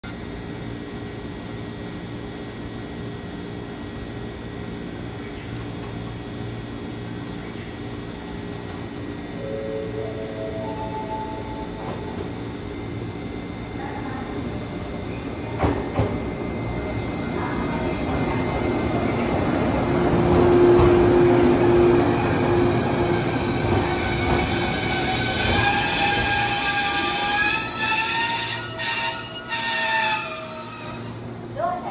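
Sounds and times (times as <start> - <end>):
train wheels rumbling: 10.7 - 31.9
high squealing brakes: 23.5 - 31.3.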